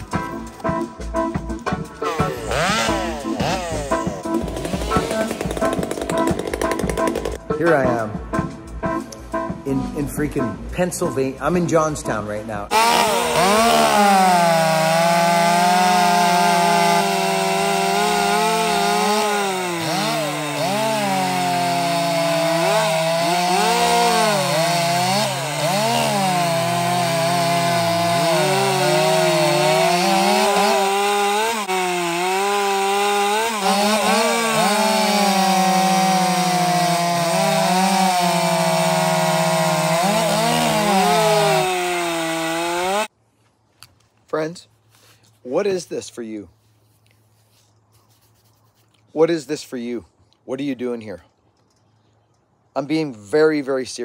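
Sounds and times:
chainsaw cutting wood: 2.0 - 7.4, 12.7 - 43.1.

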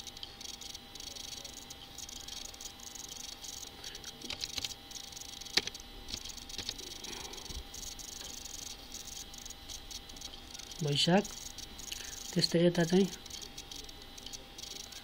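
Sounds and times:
keyboard and mouse clicks: 5.5 - 6.8.

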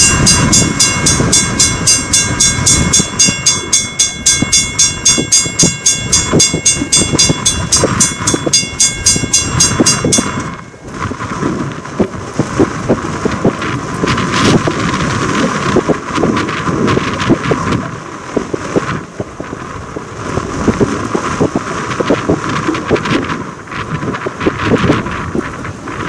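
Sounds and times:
steam locomotive running: 0.0 - 18.1
wind buffeting microphone: 0.0 - 26.0.

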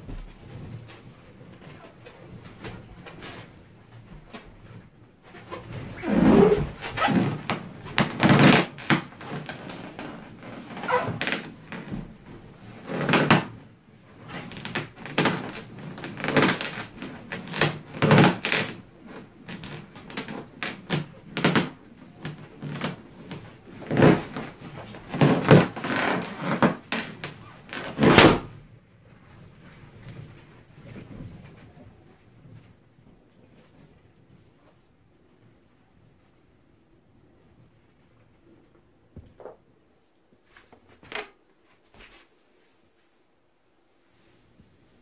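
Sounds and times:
balloon squeaking and thumping: 5.4 - 12.2, 12.8 - 13.6, 14.4 - 28.5.

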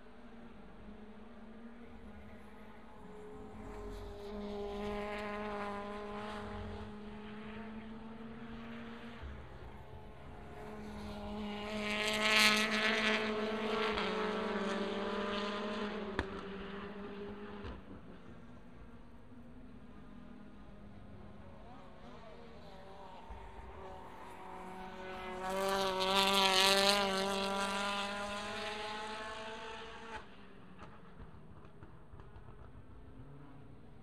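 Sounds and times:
racing car engines passing: 0.2 - 34.0.

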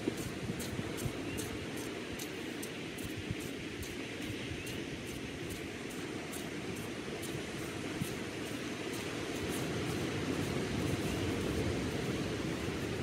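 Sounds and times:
small waves washing on sand: 0.0 - 13.0.

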